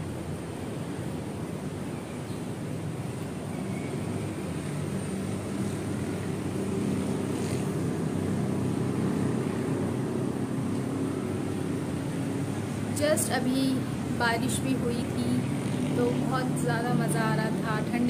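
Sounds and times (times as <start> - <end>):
distant engines rumbling: 0.0 - 18.0.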